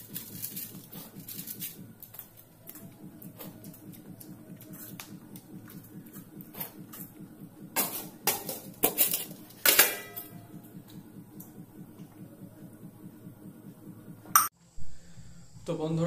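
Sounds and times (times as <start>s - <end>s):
metal bowls clattering: 7.8s - 10.4s.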